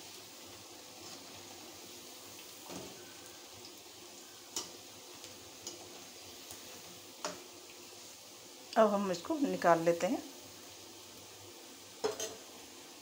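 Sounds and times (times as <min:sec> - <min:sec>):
fritters sizzling in hot oil: 0:00.0 - 0:13.0
steel spatula clinking on pan: 0:12.0 - 0:12.4.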